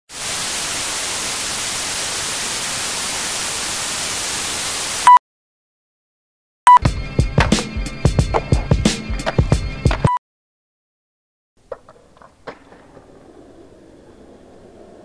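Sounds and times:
tv static hiss: 0:00.1 - 0:05.2.

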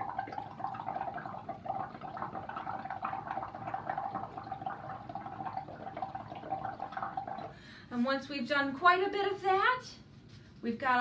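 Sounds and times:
bubbling through a straw: 0:00.0 - 0:07.6.

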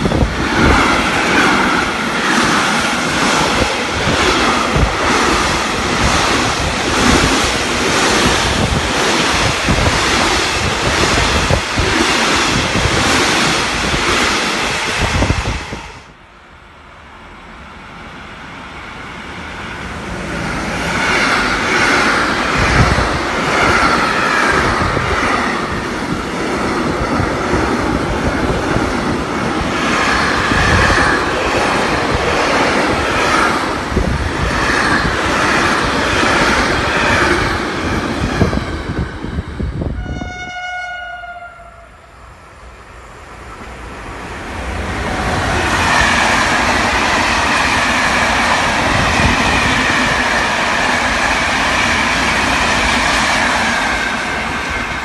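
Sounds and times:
train rumble: 0:00.0 - 0:55.0
short train horn note: 0:40.0 - 0:42.1.

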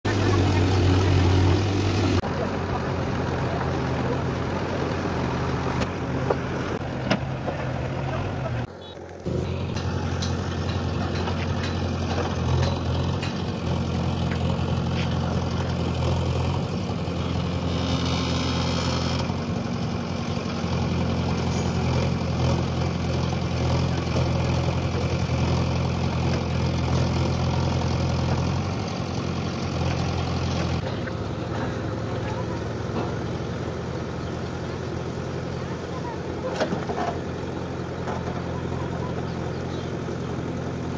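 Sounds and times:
diesel engine running: 0:00.0 - 0:40.9
backhoe digging soil: 0:08.8 - 0:34.3.

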